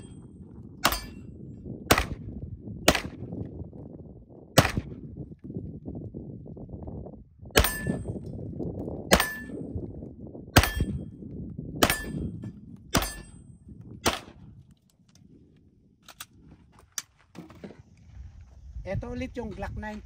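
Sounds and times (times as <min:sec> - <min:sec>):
metallic ring of steel target: 0:00.0 - 0:01.5, 0:07.6 - 0:08.4, 0:09.1 - 0:09.8, 0:10.6 - 0:11.2, 0:11.8 - 0:14.3
pistol shots: 0:01.9 - 0:02.2, 0:02.9 - 0:03.2, 0:04.6 - 0:05.0, 0:14.0 - 0:14.4.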